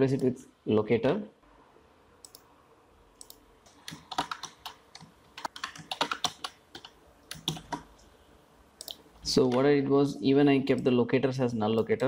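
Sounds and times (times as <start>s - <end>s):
typing on a computer keyboard: 3.2s - 7.9s.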